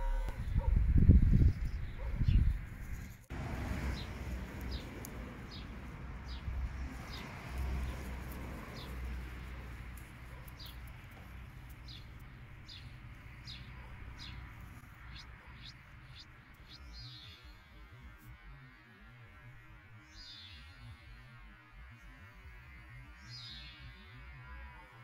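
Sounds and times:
songbird chirping: 0.0 - 18.2.

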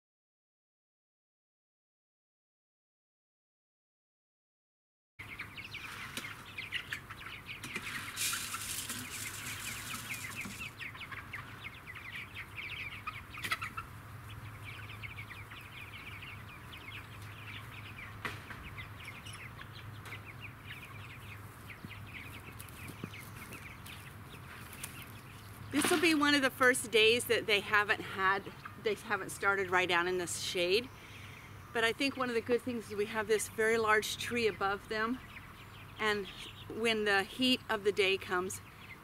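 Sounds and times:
chicks peeping: 5.2 - 39.0
rustle: 5.3 - 27.4.

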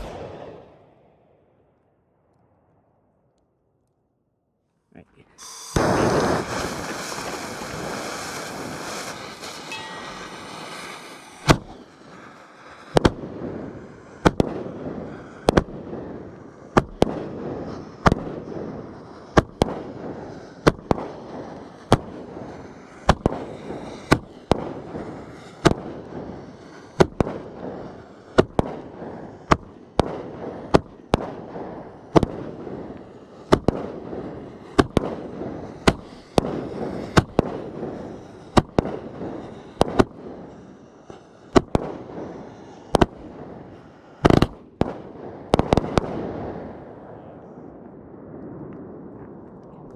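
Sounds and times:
firework shots cracking: 0.0 - 1.0, 5.4 - 47.1
firework hissing: 5.3 - 25.6, 34.4 - 44.6.

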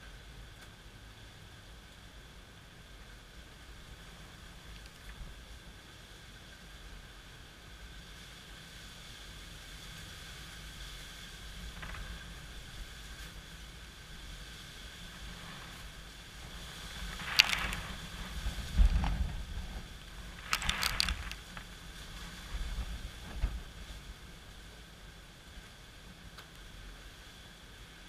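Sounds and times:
gusty wind and rain: 0.0 - 28.0
high hissing and crackling: 10.1 - 24.7
wind buffeting microphone: 14.8 - 24.2.

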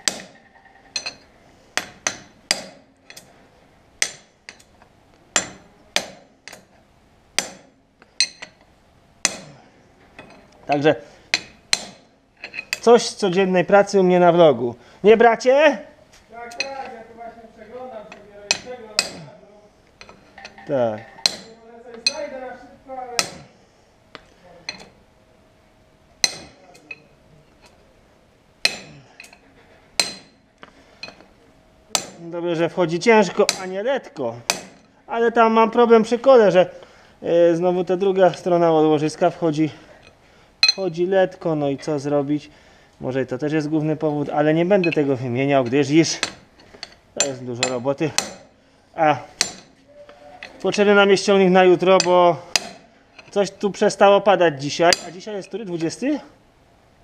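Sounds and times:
hammer striking a steel bar: 0.0 - 1.2, 1.8 - 3.3, 4.0 - 4.7, 5.4 - 6.7, 7.4 - 8.6, 9.2 - 9.6, 11.3 - 12.1, 18.5 - 19.3, 21.2 - 22.3, 23.2 - 23.5, 26.2 - 26.9, 28.6 - 29.4, 30.0 - 30.4, 31.9 - 32.2, 34.5 - 34.9, 46.2 - 48.5, 49.4 - 49.8, 52.0 - 52.9, 54.9 - 55.2
hammer striking steel drift: 1.8 - 3.3, 7.4 - 8.6, 9.2 - 9.6, 11.3 - 12.7, 28.6 - 29.4, 30.0 - 30.4, 49.3 - 49.8, 52.0 - 52.9.

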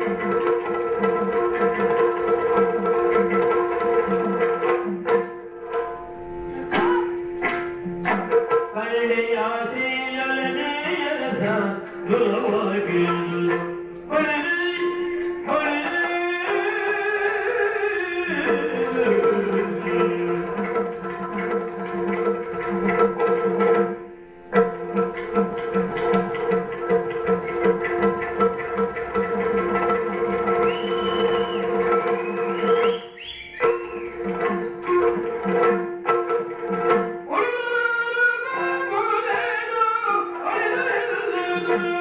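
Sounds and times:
drums playing: 6.6 - 8.6, 18.4 - 23.9, 24.5 - 37.2
person singing: 8.7 - 20.9, 37.3 - 42.0.

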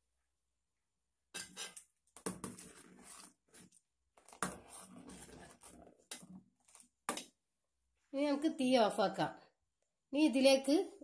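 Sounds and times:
ladle scraping a metal pot: 1.4 - 6.8.

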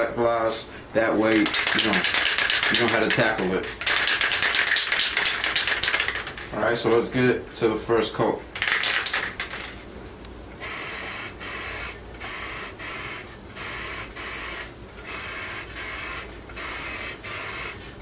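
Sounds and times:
aerosol can spraying: 1.3 - 6.3, 10.6 - 17.8.

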